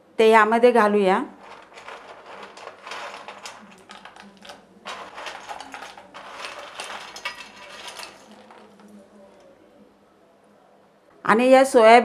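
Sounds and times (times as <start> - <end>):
dry chunks rattling on steel: 1.4 - 9.2.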